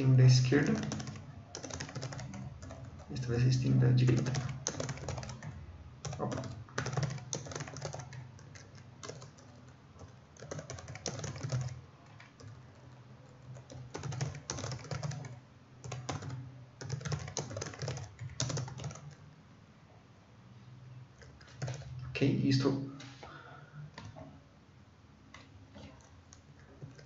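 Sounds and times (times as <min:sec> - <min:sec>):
computer keyboard typing: 0:00.0 - 0:19.2, 0:21.2 - 0:22.0, 0:25.8 - 0:27.0.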